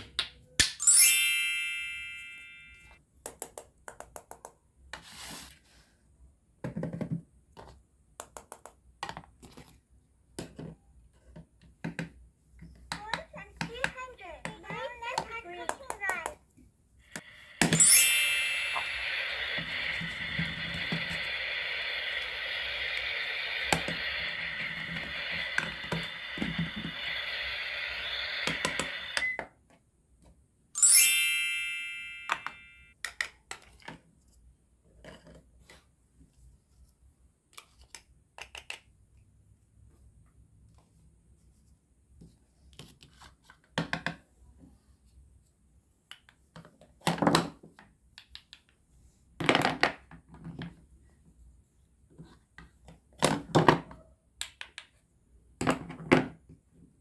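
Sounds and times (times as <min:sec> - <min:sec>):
bright chime: 0:00.8 - 0:03.0, 0:17.4 - 0:20.2, 0:30.8 - 0:32.9
toy electronic cooking sound: 0:17.2 - 0:29.5, 0:30.8 - 0:32.8.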